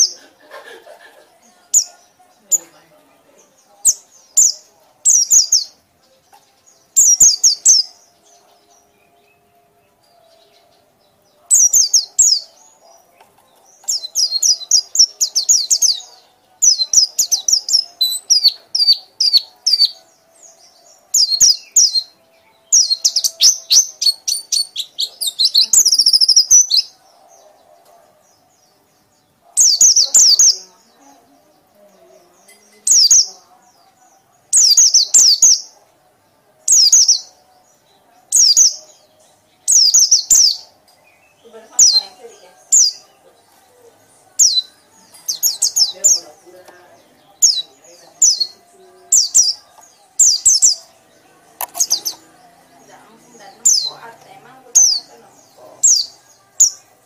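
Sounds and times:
bird twittering trills: 3.3s - 27.4s, 32.0s - 33.8s, 44.3s - 57.0s.

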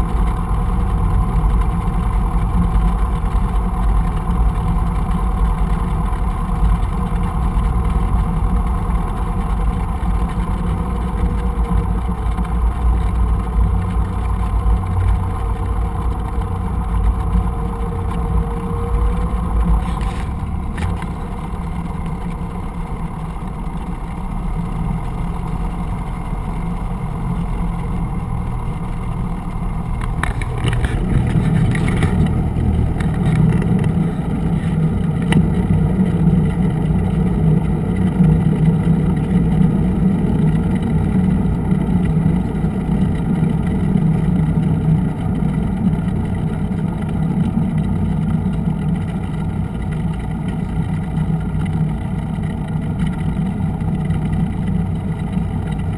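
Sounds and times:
airplane engine and propeller running: 0.0s - 55.9s.

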